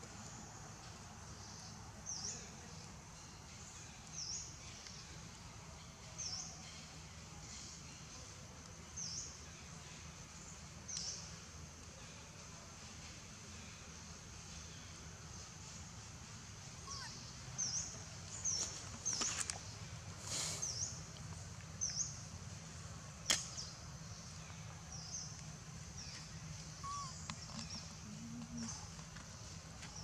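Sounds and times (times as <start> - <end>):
rustle: 0.0 - 30.0
low hum: 20.9 - 29.9.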